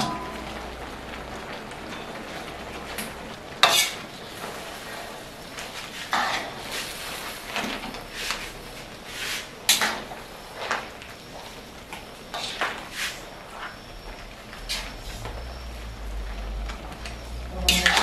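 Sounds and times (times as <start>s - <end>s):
frying sizzle: 0.0s - 18.0s
metal spatula scraping a wok: 3.6s - 4.0s, 6.0s - 7.2s.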